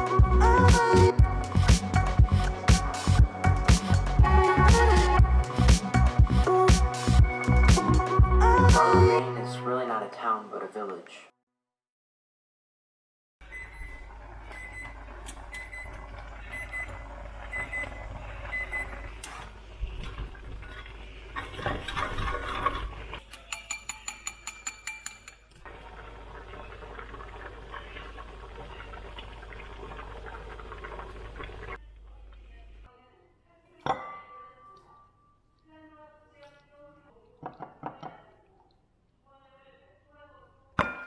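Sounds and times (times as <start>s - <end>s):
appliance beeping: 13.4s - 19.3s.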